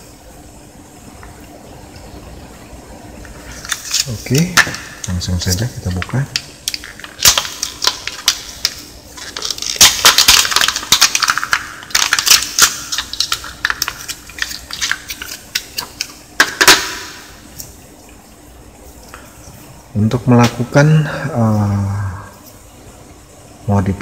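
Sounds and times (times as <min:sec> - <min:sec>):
plastic packaging crinkling: 0:03.4 - 0:17.8
plastic snapping: 0:05.9 - 0:17.2.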